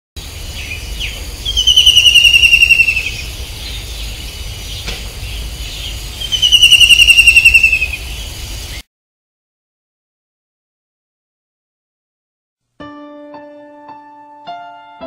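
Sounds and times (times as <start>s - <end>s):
bird calling in rapid trills: 0.2s - 8.8s
steady background hiss: 0.2s - 8.8s.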